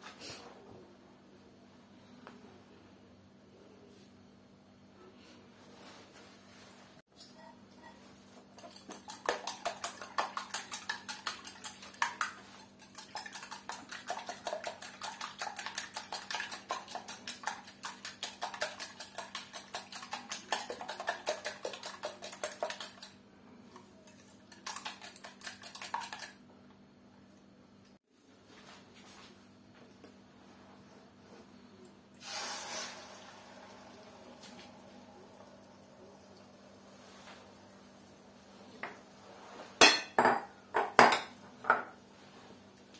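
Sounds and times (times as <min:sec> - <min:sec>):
whisk clicking against glass bowl: 0:08.7 - 0:23.1.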